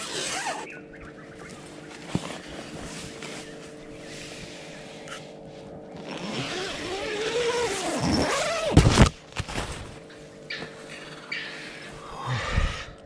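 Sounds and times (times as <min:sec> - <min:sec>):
strong wind howling: 0:12.1 - 0:13.0.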